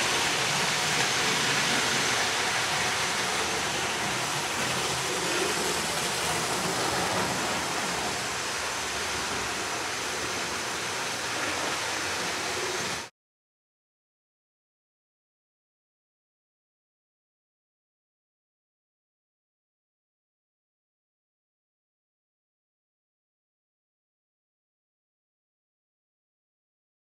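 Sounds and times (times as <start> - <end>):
model trains running on rails: 0.0 - 13.1.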